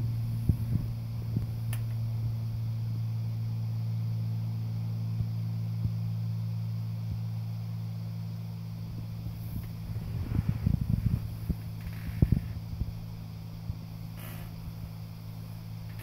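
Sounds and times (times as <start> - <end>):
low machine hum: 0.0 - 16.0
faint ticks: 1.4 - 2.0.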